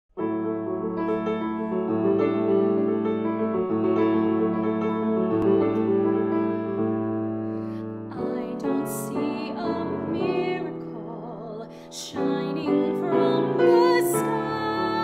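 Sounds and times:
grand piano chords: 0.1 - 15.0
woman singing with vibrato: 8.1 - 15.0.

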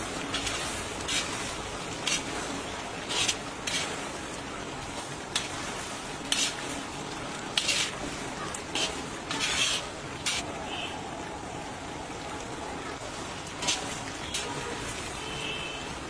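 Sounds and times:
food sizzling in a wok: 0.0 - 4.2, 4.9 - 10.8, 13.6 - 14.6
metal spatula scraping a pan: 0.2 - 4.2, 5.3 - 6.9, 7.5 - 10.4, 13.6 - 14.6.

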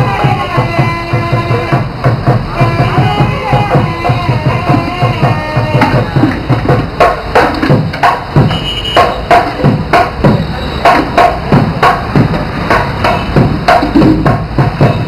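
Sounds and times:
held melody line: 0.0 - 11.5
deep drum beats: 0.0 - 15.0
sharp cracking drum strikes: 0.0 - 15.0.

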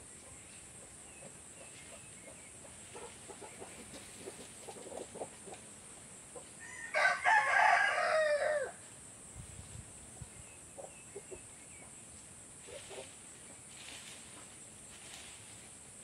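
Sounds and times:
rooster crowing: 6.6 - 8.8.

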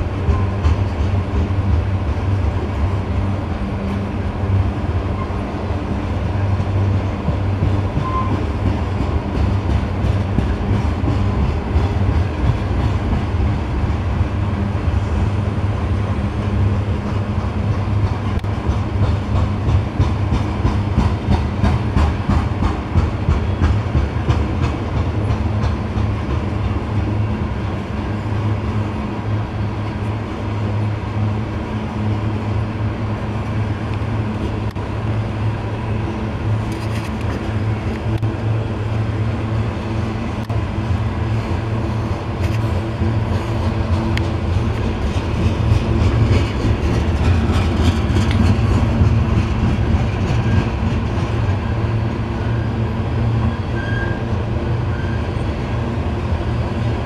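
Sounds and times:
train cars rumbling past: 0.0 - 57.0
wheels clicking over rail joints: 42.3 - 51.7.

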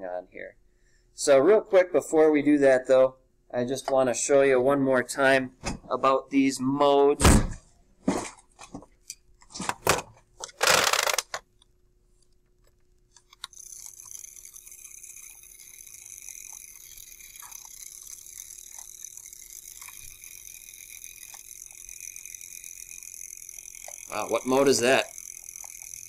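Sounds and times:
small motor whirring: 10.6 - 11.3, 13.2 - 26.0.

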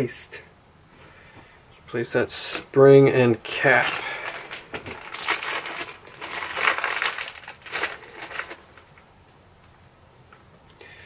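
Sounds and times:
plastic bag crinkling: 3.5 - 9.0.

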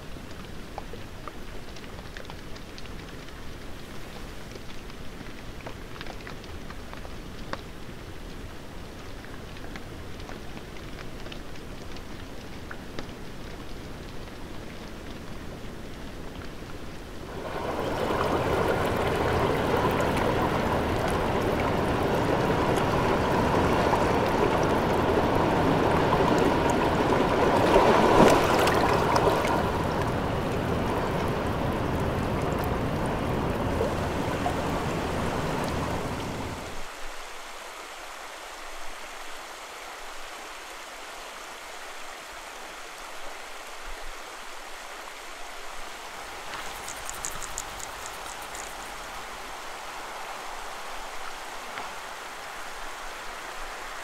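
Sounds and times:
faint hiss: 16.5 - 54.0
river water rushing: 17.1 - 54.0.

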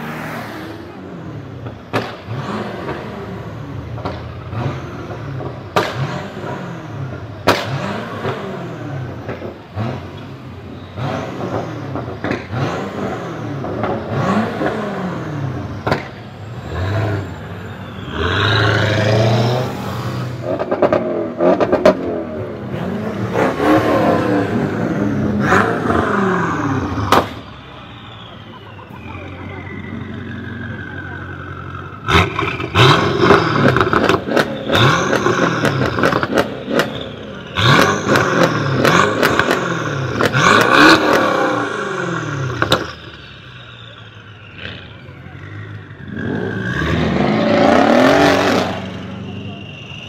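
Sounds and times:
car engine revving: 0.0 - 50.0
exhaust cracks: 19.6 - 50.0.

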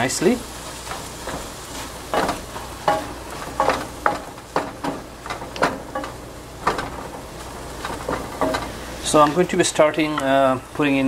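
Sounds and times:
spatula scraping frying pan: 0.0 - 9.5
vegetables sizzling: 0.0 - 11.0.

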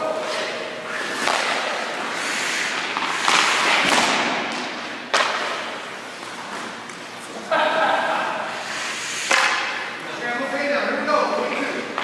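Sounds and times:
skate blades scraping ice: 0.2 - 6.8, 8.6 - 9.8
hockey stick hitting puck: 0.3 - 6.4, 9.2 - 9.8, 11.5 - 12.0.

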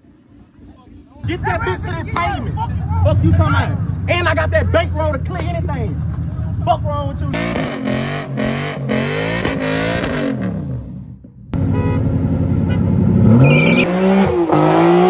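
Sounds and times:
sports car engine revving: 0.2 - 15.0
tyre squeal: 13.4 - 13.9.

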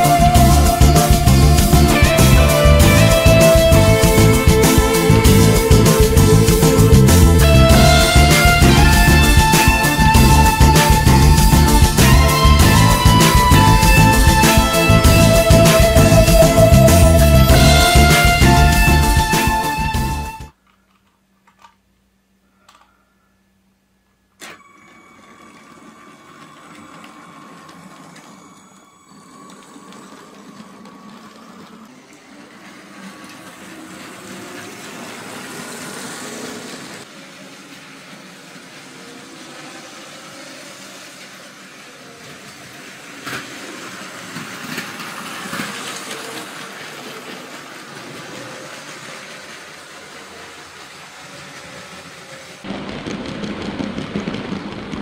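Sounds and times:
wheels rolling on plastic track: 0.0 - 19.8, 20.4 - 21.8, 24.4 - 55.0
toy train motor whirring: 24.4 - 52.6.

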